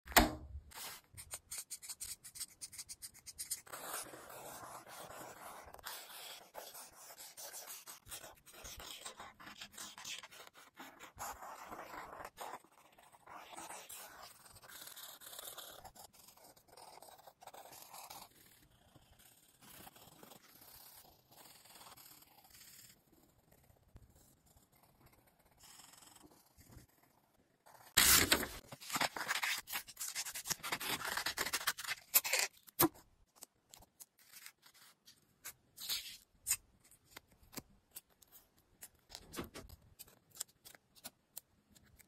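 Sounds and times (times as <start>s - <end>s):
pen scratching on paper: 0.8s - 23.0s, 23.6s - 33.0s
colored pencil shading: 0.8s - 28.6s.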